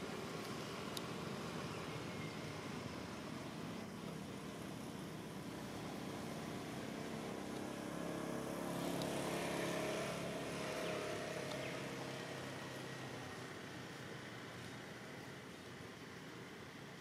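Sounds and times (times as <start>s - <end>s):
engine droning: 0.0s - 17.0s.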